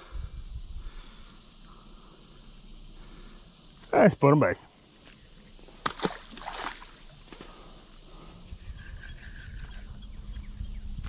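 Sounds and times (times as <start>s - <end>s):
insects chirring: 0.0s - 11.0s
fish splashing into water: 5.8s - 7.1s.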